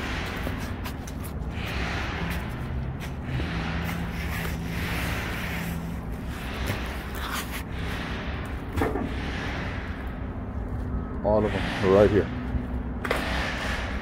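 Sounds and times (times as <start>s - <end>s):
rubber tires swishing: 0.0s - 8.3s
steady low hum: 0.0s - 14.0s.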